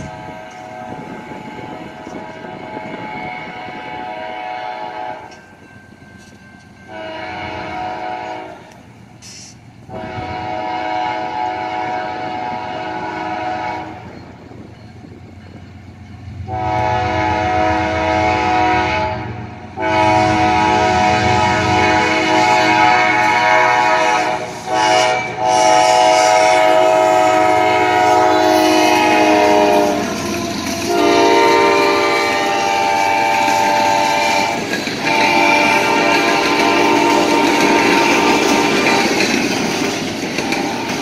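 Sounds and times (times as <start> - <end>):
locomotive air horn blasts: 0.0 - 5.4, 6.9 - 14.1, 16.4 - 39.2.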